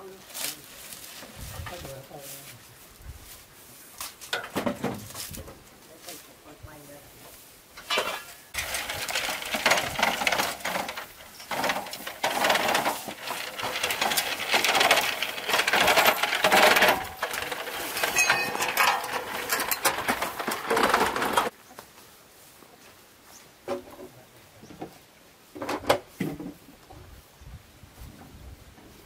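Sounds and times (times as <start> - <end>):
objects clinking and clattering: 7.8 - 21.5.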